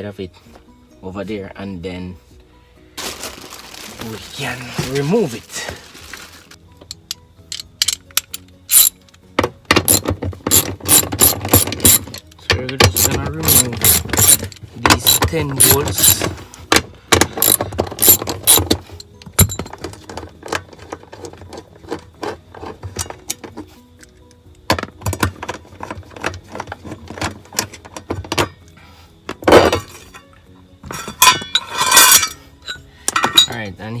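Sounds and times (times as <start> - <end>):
hand ratchet clicking: 6.9 - 9.0, 9.9 - 16.3, 17.3 - 18.8
metal clatter: 9.8 - 16.3, 17.2 - 18.8, 30.8 - 33.6.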